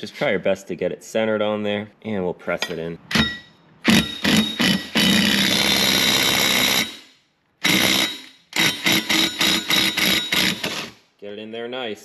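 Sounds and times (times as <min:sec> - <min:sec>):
impact gun hammering: 0:03.1 - 0:05.4.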